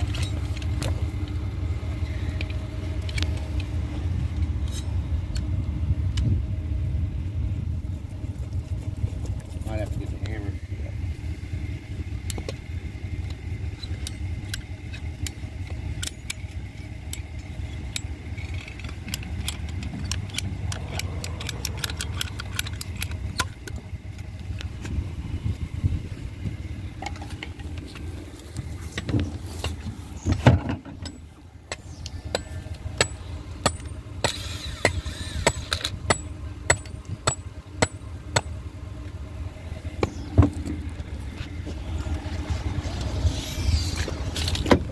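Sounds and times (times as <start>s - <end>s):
low rumble: 0.0s - 44.9s
sharp clicks and light knocks: 13.2s - 25.0s.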